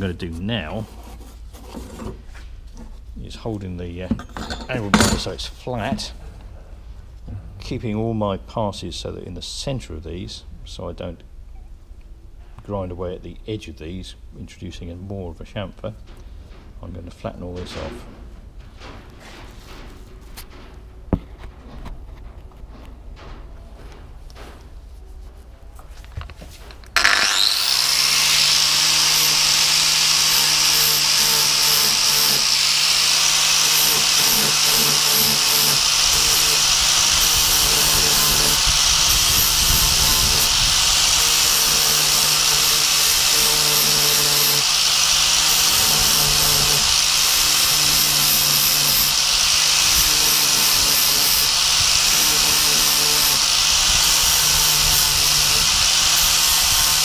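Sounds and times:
angle grinder grinding steel: 27.0 - 57.0.

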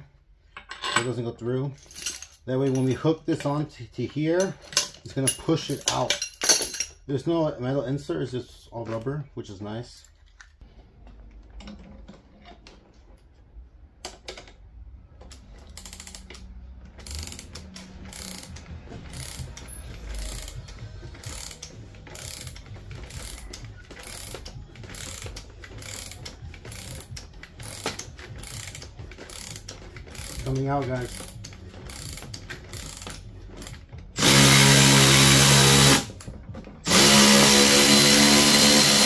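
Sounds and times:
hand ratchet clicking: 15.2 - 39.0.

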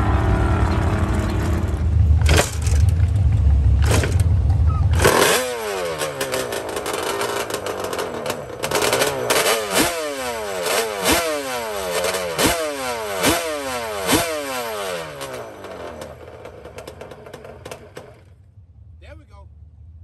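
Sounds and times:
quad engine revving: 3.8 - 18.3.

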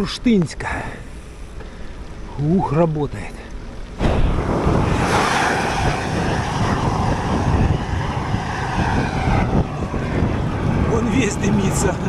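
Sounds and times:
wind buffeting microphone: 3.9 - 12.0.

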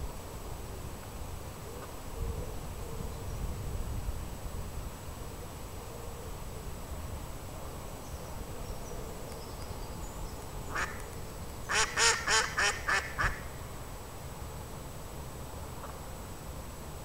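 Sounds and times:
duck quacking: 11.7 - 13.4.

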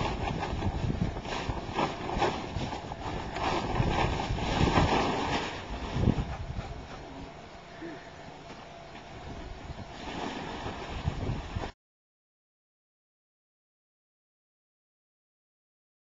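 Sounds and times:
wind buffeting microphone: 0.0 - 7.1, 9.2 - 11.7.

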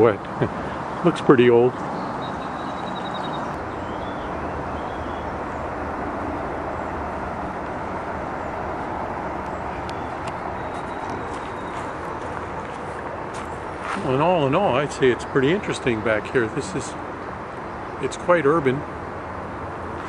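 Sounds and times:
distant road traffic: 0.0 - 20.0
faint high chirps: 2.0 - 12.0.

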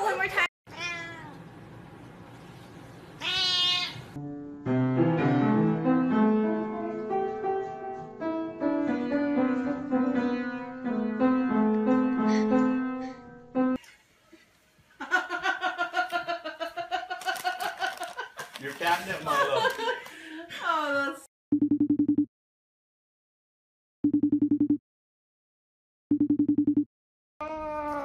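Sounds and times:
cat meowing: 0.7 - 1.4, 3.2 - 4.2
piano notes: 4.2 - 13.8.

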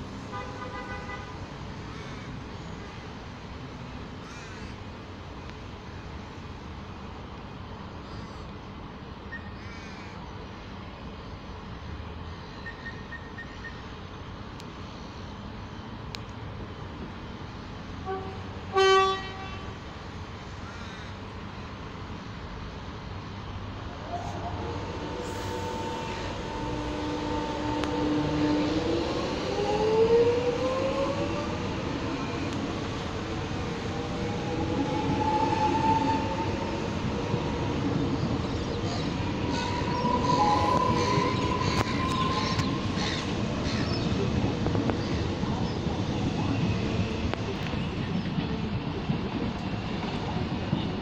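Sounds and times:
train rumbling past: 0.0 - 51.0
train horn toot: 0.3 - 1.5, 18.0 - 19.8, 24.1 - 29.8
traction motors whining: 23.8 - 44.8.

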